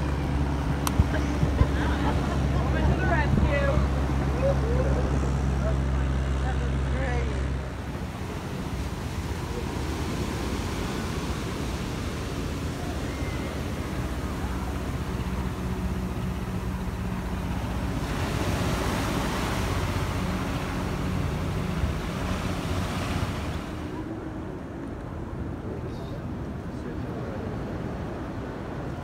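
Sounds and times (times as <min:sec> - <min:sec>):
wind on microphone: 0:00.0 - 0:05.6
ocean surf breaking: 0:00.0 - 0:25.6.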